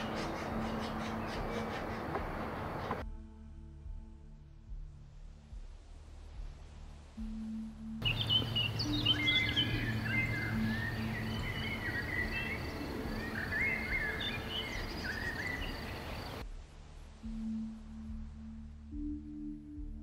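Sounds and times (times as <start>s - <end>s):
songbirds chirping and warbling: 0.0s - 3.0s, 8.0s - 16.4s
steady background hiss: 0.0s - 3.0s, 4.6s - 20.0s.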